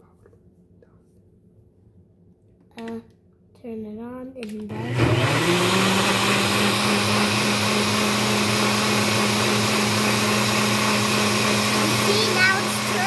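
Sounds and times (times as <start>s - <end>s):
blender running: 4.7s - 13.0s.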